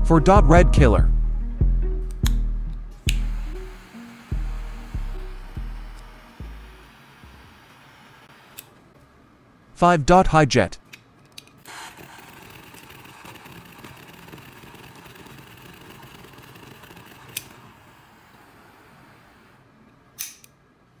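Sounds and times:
lighter clicks: 2.1s - 2.4s, 3.0s - 3.9s, 20.2s - 20.6s
torch lighter flame hissing: 2.9s - 8.8s, 11.6s - 19.6s.

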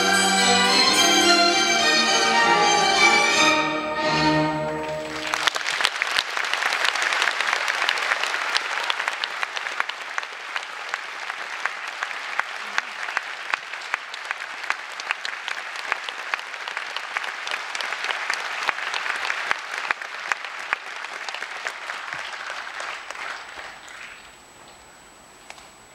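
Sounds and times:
audience applauding: 4.5s - 24.4s.

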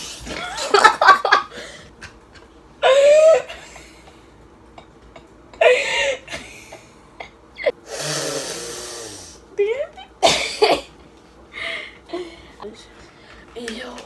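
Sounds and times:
women laughing: 0.3s - 1.8s.

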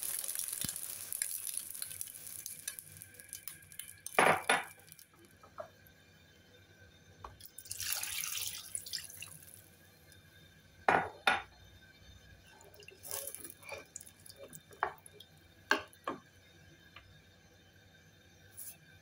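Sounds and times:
water splashing into a pan: 0.0s - 5.1s, 7.4s - 9.6s, 12.6s - 16.0s.

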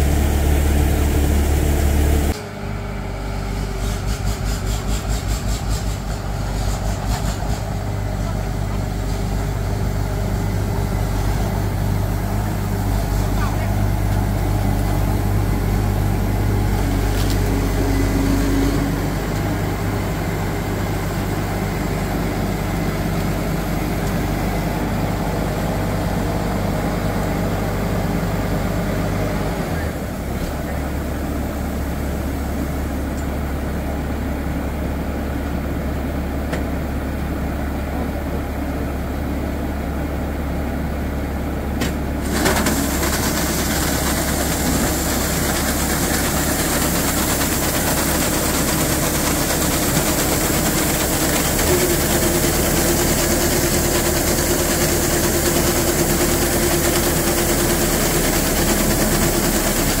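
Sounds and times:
steady machine whine: 0.0s - 36.2s
harvester engine humming: 0.0s - 60.0s
rice pouring hiss: 42.2s - 60.0s.

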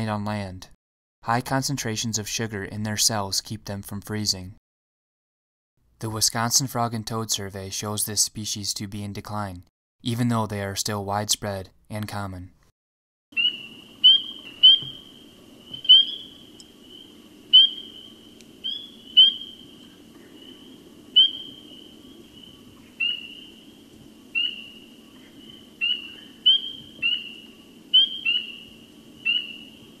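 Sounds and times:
frog peeps: 13.4s - 23.7s, 24.3s - 29.8s
frog chorus: 13.4s - 30.0s.

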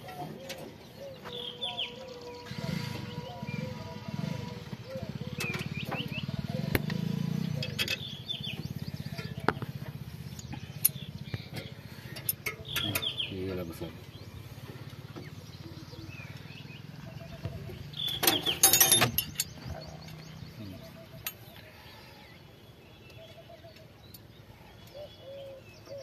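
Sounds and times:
faint bird chirps: 0.1s - 26.0s
metal tools clanking: 7.6s - 8.1s, 10.8s - 13.4s, 18.0s - 20.2s, 21.1s - 21.6s.

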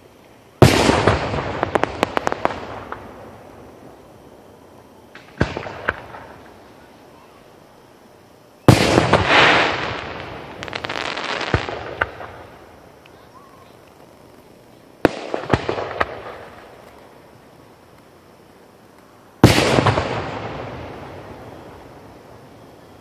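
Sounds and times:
firework crackling: 0.0s - 23.0s
firework bangs: 0.6s - 4.0s, 5.1s - 7.4s, 8.6s - 17.2s, 19.4s - 23.0s.

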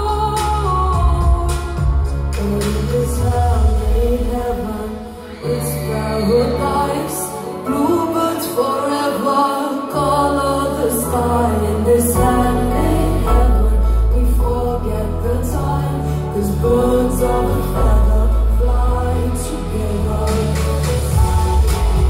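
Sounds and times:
band with heavy bass: 0.0s - 8.3s, 9.9s - 22.0s
woman singing into a microphone: 0.0s - 22.0s.

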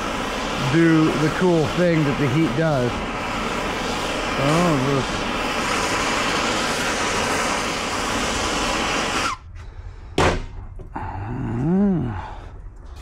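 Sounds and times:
gas torch hissing: 0.0s - 12.6s
sharp knock: 10.2s - 10.5s.

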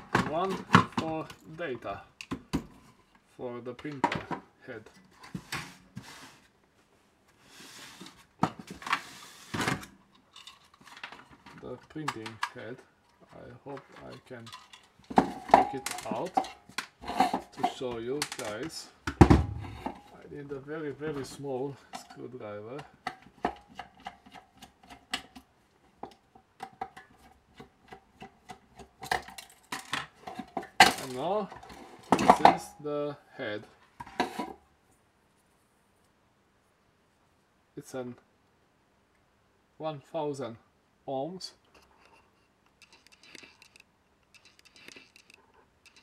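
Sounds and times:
plastic clunks and scrapes: 33.9s - 34.6s.

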